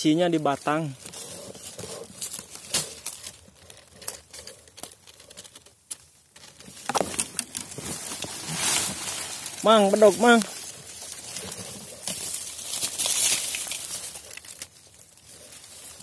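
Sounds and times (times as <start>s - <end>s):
bamboo leaves rustling: 0.0s - 16.0s
bamboo stems snapping: 2.1s - 9.7s, 10.3s - 16.0s.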